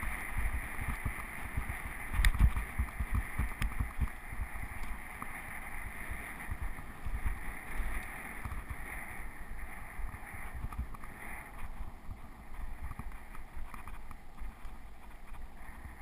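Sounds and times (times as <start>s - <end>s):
bike rattles: 0.0s - 16.0s
wind buffeting microphone: 0.0s - 16.0s.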